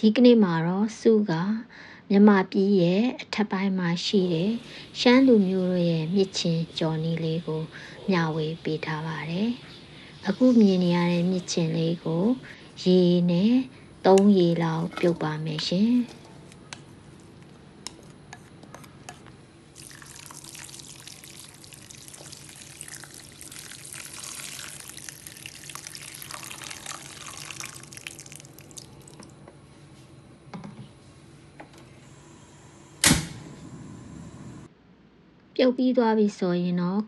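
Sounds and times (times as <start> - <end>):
tap water running into wok: 19.8 - 29.3.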